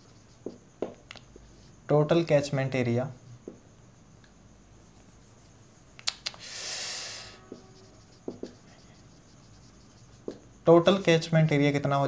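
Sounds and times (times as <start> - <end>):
marker scratching on whiteboard: 0.0 - 1.7, 4.8 - 6.2, 7.4 - 11.8
marker tapping on whiteboard: 0.3 - 1.2, 7.4 - 8.7, 10.1 - 10.5.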